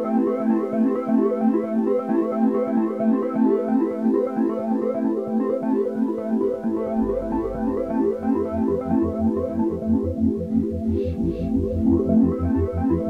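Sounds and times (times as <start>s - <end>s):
keyboard notes music: 5.3s - 13.0s
deep bass note: 7.0s - 9.2s.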